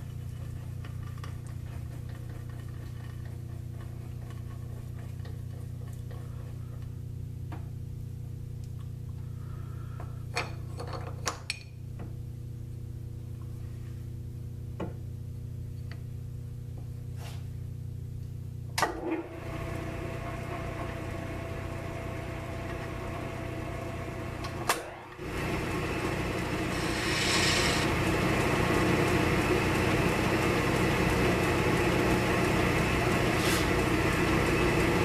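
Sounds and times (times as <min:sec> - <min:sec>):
lathe motor humming: 0:19.4 - 0:35.0
short high hiss: 0:26.7 - 0:27.9.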